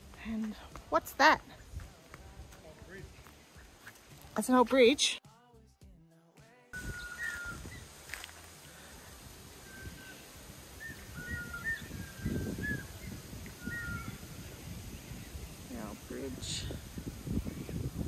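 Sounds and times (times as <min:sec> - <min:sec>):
birds whistling: 0:06.8 - 0:08.2, 0:09.6 - 0:15.5.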